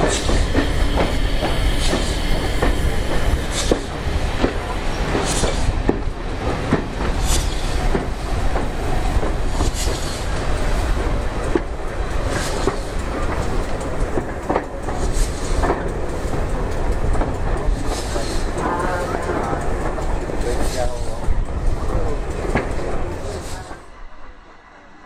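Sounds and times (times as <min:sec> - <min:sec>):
wheels clicking over rail joints: 0:00.0 - 0:23.8
train wheels rumbling: 0:00.0 - 0:25.0.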